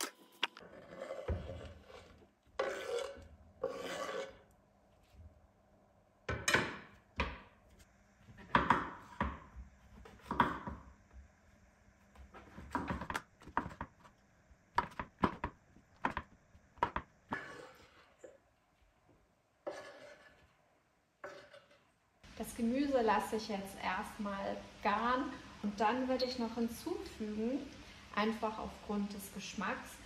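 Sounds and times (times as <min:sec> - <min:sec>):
knife scraping board: 0:00.0 - 0:04.4, 0:19.6 - 0:20.5.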